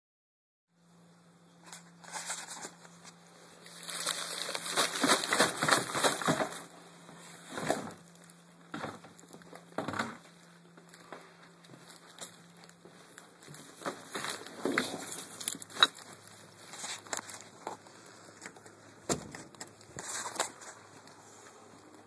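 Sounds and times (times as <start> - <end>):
faint low hum: 0.7 - 22.0
plastic trash bag rustling: 1.8 - 18.0.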